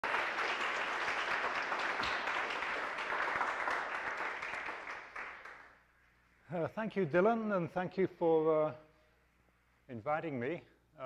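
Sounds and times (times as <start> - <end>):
audience applause: 0.0 - 5.8.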